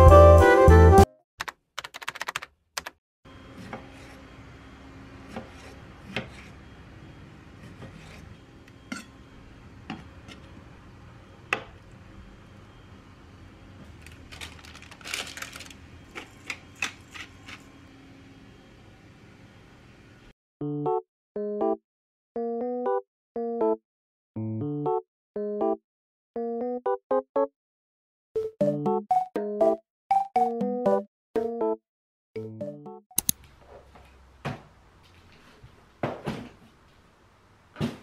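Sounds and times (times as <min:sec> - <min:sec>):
background music: 0:00.0 - 0:01.1, 0:32.4 - 0:33.3.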